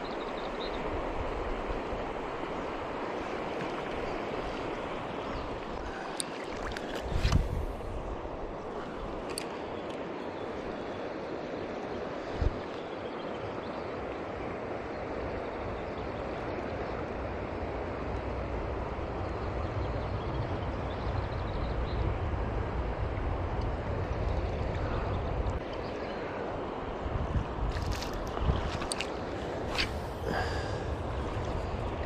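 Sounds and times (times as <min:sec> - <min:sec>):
river water rushing: 0:00.0 - 0:12.2, 0:27.8 - 0:32.0.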